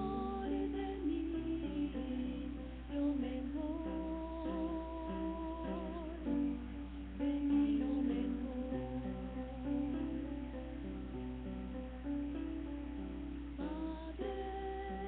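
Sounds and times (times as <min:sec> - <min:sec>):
woman singing a hymn: 0:00.0 - 0:10.6, 0:13.6 - 0:15.0
low electrical hum: 0:00.0 - 0:15.0.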